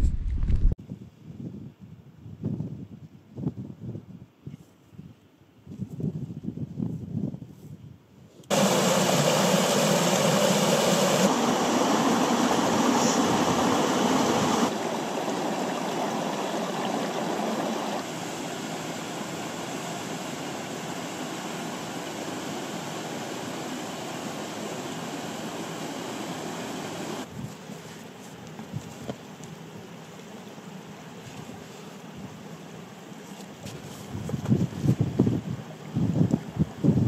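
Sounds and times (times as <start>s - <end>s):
river water rushing over rocks: 8.5s - 27.2s.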